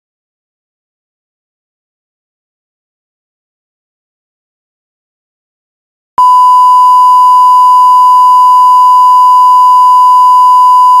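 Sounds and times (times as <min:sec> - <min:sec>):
sine-wave test tone: 0:06.2 - 0:11.0.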